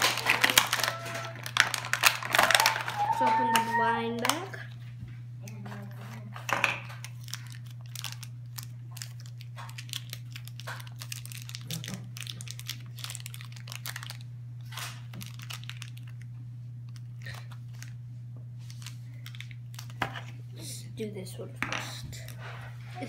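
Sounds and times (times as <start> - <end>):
plastic packaging crinkling and tearing: 0.0 - 4.6, 6.9 - 18.0, 18.6 - 20.3
steady low hum: 0.0 - 23.0.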